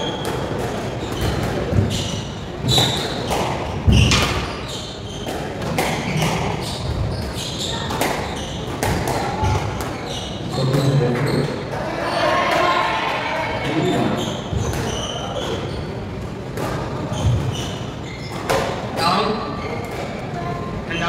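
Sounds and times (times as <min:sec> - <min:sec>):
squash ball hitting rackets: 0:00.0 - 0:04.6, 0:05.2 - 0:10.0, 0:16.5 - 0:19.1
shoes squeaking on wooden floor: 0:00.9 - 0:05.4, 0:06.0 - 0:08.7, 0:09.4 - 0:11.6, 0:13.8 - 0:16.1, 0:17.0 - 0:18.7.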